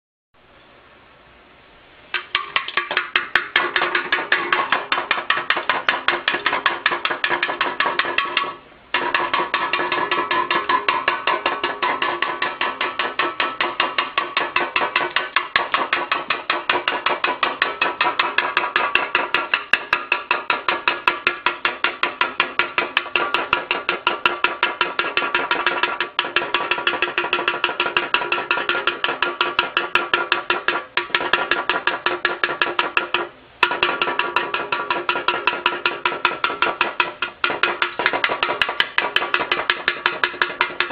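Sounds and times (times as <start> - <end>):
bird pecking metal can: 2.1 - 40.9.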